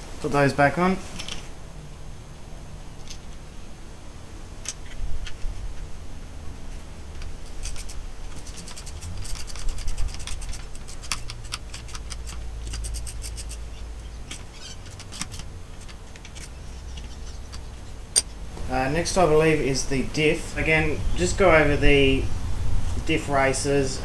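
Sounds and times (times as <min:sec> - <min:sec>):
socket ratchet clicking: 0:07.2 - 0:18.4.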